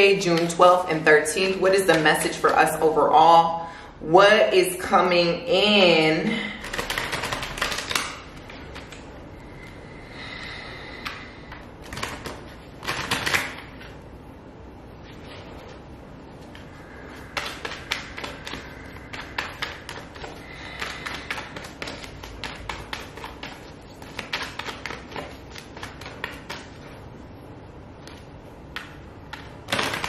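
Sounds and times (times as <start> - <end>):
cards being shuffled: 6.6 - 9.1, 11.0 - 14.0, 16.4 - 27.0, 28.0 - 30.0.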